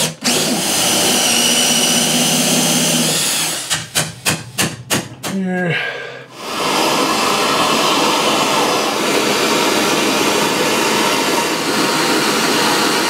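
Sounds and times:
gas torch hissing: 6.3s - 13.0s.

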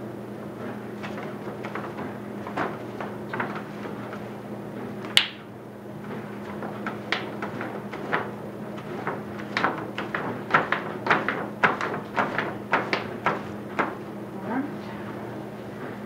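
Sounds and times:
steady low hum: 0.0s - 16.0s
painting gear knocking and tapping: 6.4s - 14.0s.

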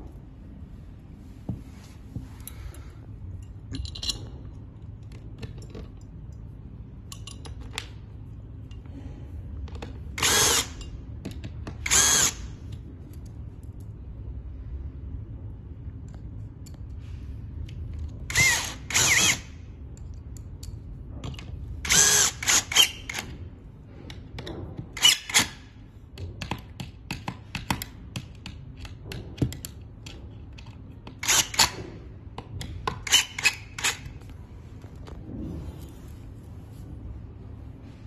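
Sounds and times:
cordless drill whining: 10.2s - 10.7s, 11.8s - 12.4s, 18.3s - 19.4s.

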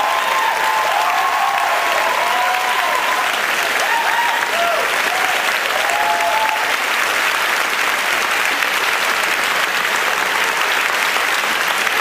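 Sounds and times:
person cheering: 0.0s - 6.7s
audience applauding: 0.0s - 12.0s.

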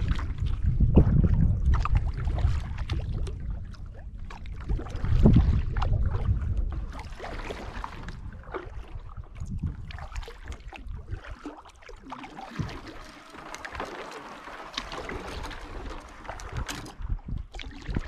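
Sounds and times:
paddle strokes splashing: 0.0s - 18.0s
reeds scraping along hull: 12.2s - 17.2s.

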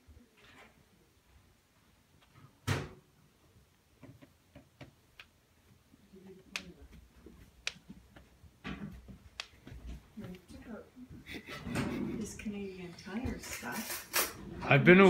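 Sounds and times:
light clicks and taps: 8.9s - 10.6s.

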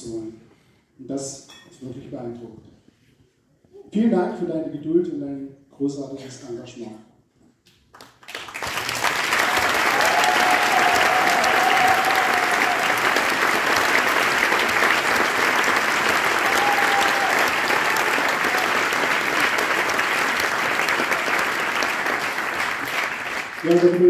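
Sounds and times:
audience applauding: 7.9s - 24.0s.

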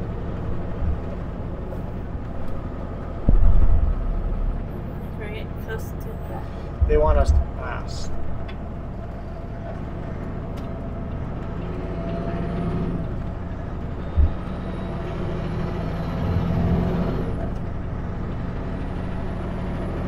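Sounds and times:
truck diesel engine humming: 0.0s - 20.0s
low thump: 3.2s - 4.9s, 6.8s - 7.6s.

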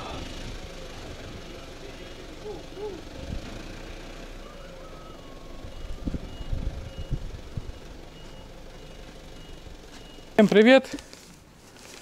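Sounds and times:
truck engine running: 0.0s - 11.5s
reversing alarm beeps: 4.8s - 10.4s.

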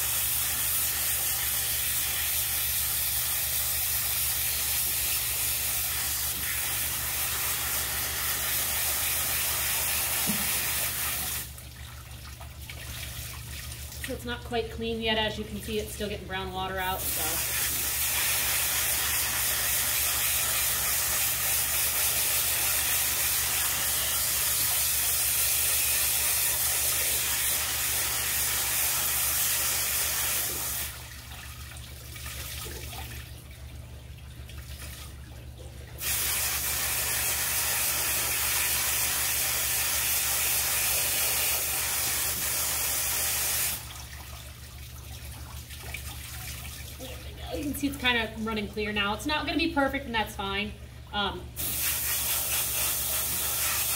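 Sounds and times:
hose nozzle spraying water: 0.0s - 11.6s, 16.9s - 31.0s, 36.0s - 43.9s, 51.6s - 53.9s.

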